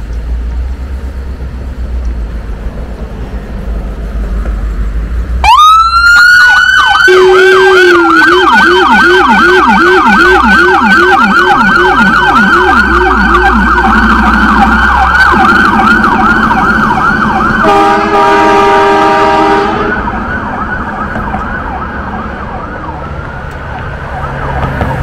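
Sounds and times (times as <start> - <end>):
ambulance siren yelping: 5.4 - 25.0
steady horn blast: 7.0 - 8.2, 13.5 - 16.0, 17.6 - 20.2.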